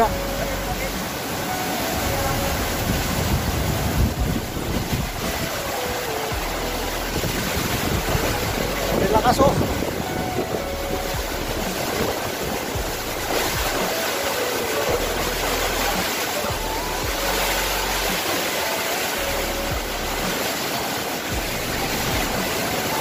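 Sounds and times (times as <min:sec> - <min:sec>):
heavy rain: 0:00.0 - 0:23.0
strong wind: 0:01.3 - 0:13.8.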